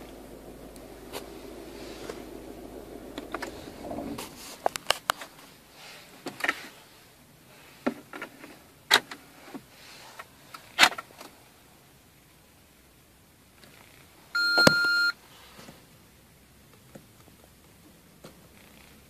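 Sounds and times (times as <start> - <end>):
low steady hum: 0.0 - 5.4, 14.4 - 15.2.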